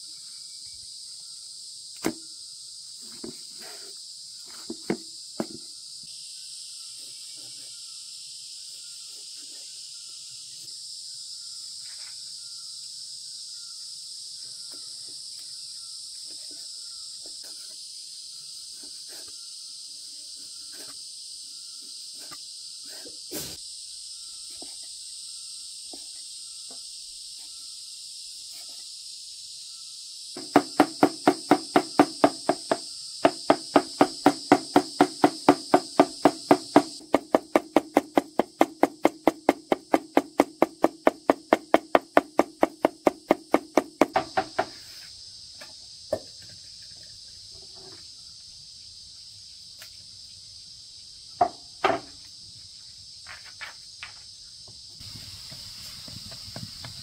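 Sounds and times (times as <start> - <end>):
high insect drone: 0.0 - 57.0
rhythmic strikes: 30.4 - 44.2.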